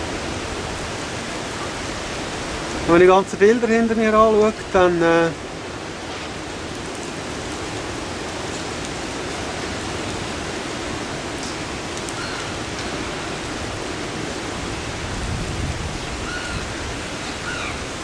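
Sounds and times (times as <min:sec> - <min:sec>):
wind buffeting microphone: 0:13.0 - 0:18.0.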